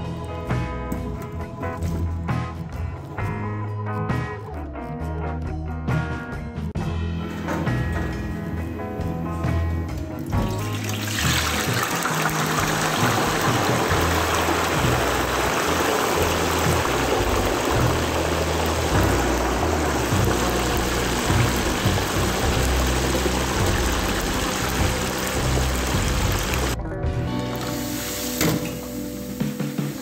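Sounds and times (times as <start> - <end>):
background music with bass: 0.0 - 30.0
fries sizzling in deep fryer: 10.4 - 26.8, 27.6 - 30.0.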